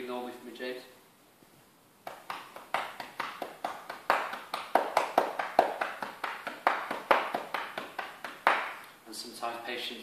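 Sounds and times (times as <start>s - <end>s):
cupped hands patting chest: 2.0s - 8.9s.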